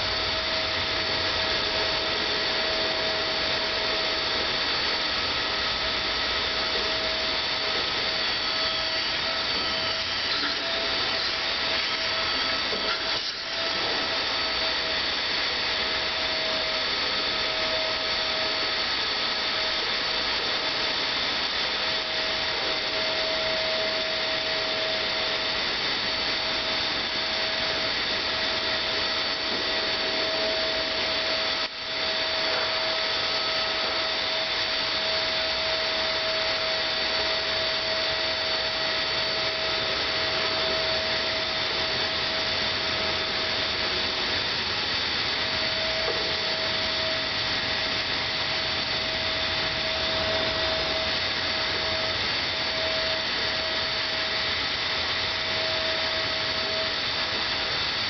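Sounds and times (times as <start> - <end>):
vacuum cleaner motor whining: 0.0 - 58.0.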